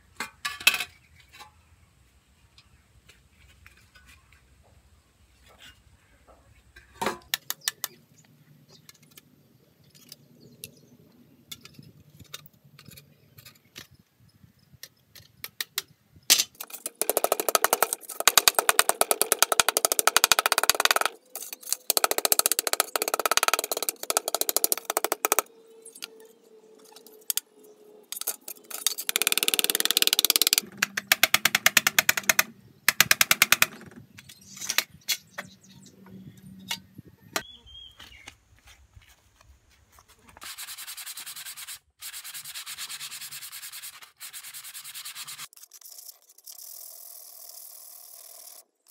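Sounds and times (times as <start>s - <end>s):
rapid rasping clicks: 16.6s - 25.5s, 28.1s - 34.9s
pliers scraping thin metal: 20.9s - 21.9s, 28.1s - 30.6s.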